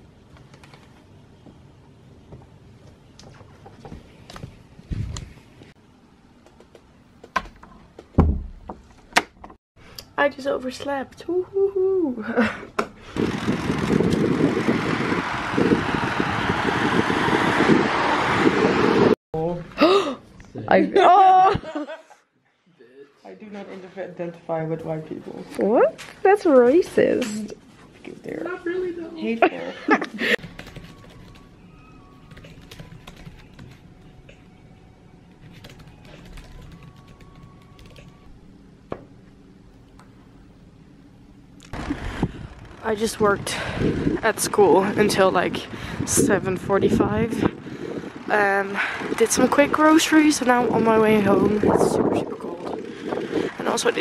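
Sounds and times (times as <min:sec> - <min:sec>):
bicycle tyre road rumble: 0:13.0 - 0:19.2, 0:41.7 - 0:54.0
wind buffeting microphone: 0:13.0 - 0:19.2, 0:41.8 - 0:54.0.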